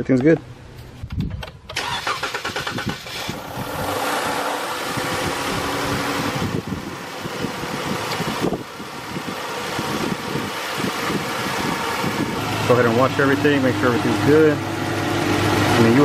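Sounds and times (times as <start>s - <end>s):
car engine cranking and idling: 1.2s - 16.0s.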